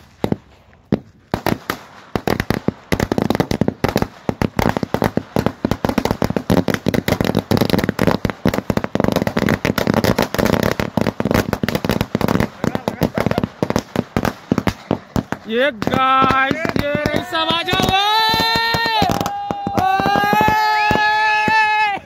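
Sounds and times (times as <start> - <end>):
firecrackers cracking: 0.0 - 22.0.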